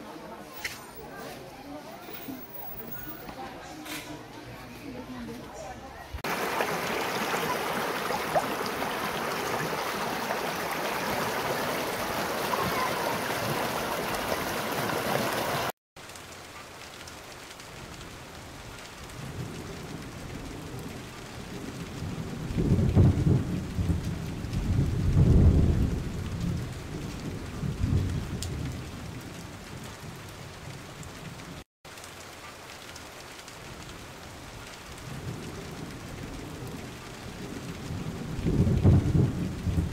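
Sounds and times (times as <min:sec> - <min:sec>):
river water rushing over rocks: 0:06.2 - 0:15.7.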